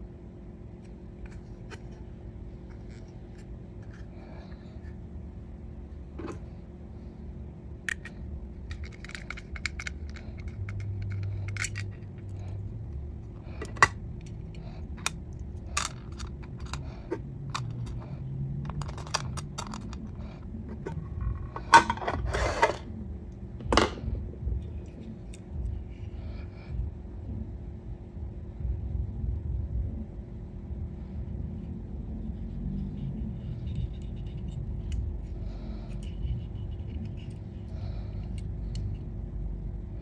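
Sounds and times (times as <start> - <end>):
plastic model being handled: 7.9 - 22.8.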